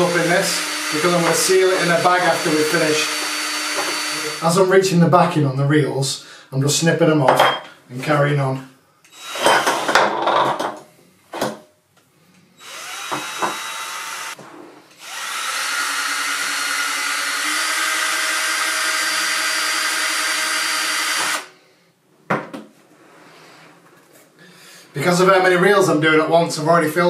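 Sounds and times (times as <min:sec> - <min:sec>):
cordless drill whining: 0:00.0 - 0:04.6, 0:09.1 - 0:10.0, 0:12.6 - 0:21.5.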